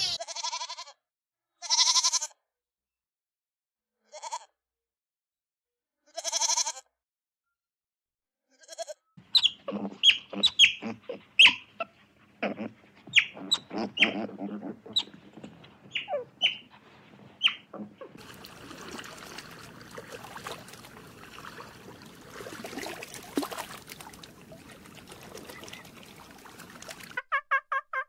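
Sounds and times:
short sharp animal calls: 9.2s - 16.8s
high wavering animal calls: 9.2s - 27.2s.

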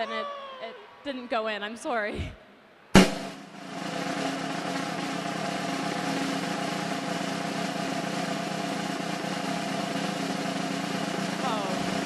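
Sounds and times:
mechanical hum drone: 3.0s - 12.0s.

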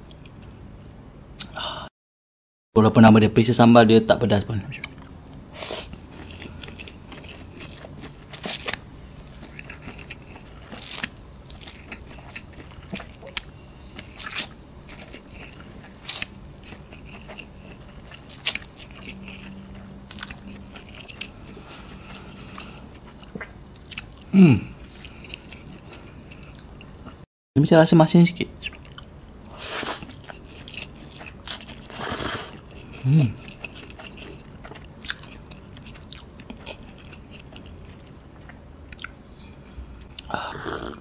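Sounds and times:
crunching dry noodles: 5.6s - 19.5s.

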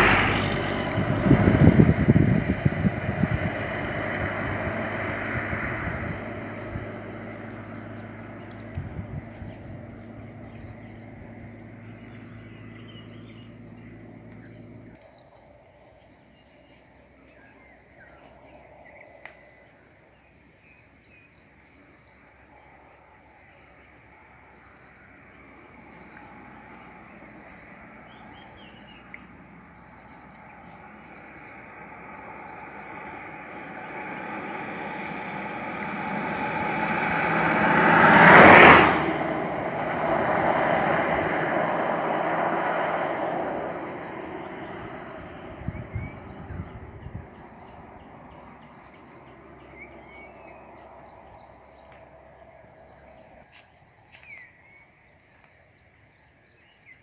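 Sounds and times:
car driving past: 0.0s - 15.2s, 23.8s - 53.5s
high insect drone: 0.0s - 57.0s.

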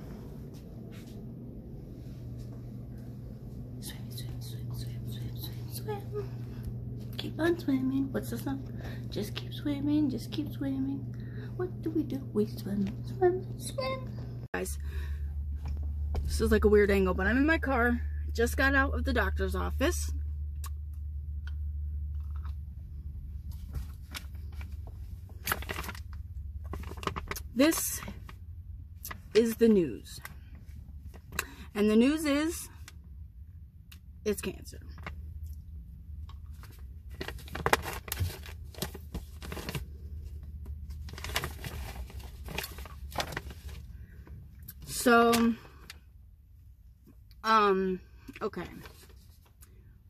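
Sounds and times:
car interior hum: 0.0s - 33.0s
paper rustling and crinkling: 23.5s - 27.4s, 36.5s - 43.9s.

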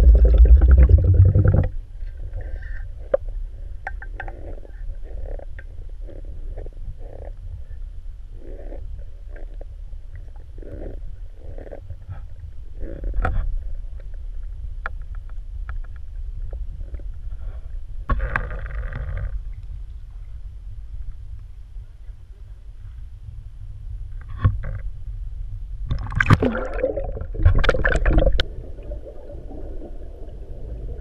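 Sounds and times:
low rumble: 0.0s - 31.0s
water splashing from swimming: 25.9s - 29.4s.

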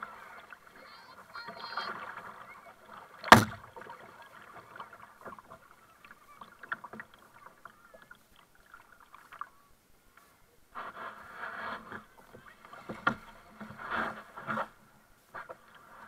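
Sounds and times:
paddle water splashing and dripping: 0.0s - 16.0s
sharp paddle knock: 3.3s - 3.6s.

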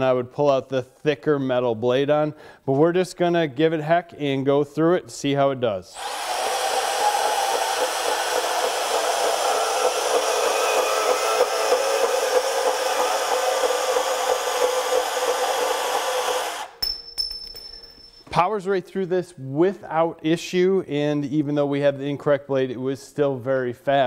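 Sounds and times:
band saw cutting metal tubing: 5.9s - 16.8s.

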